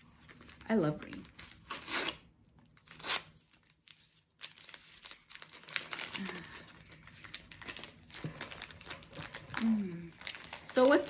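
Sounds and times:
paper ripping: 0:00.1 - 0:02.2, 0:02.8 - 0:11.0
paper crackling rustle: 0:02.8 - 0:11.0.

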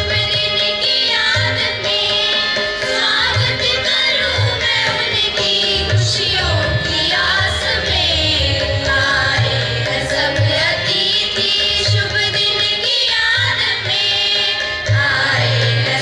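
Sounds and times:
steady drum accompaniment: 0:00.0 - 0:16.0.

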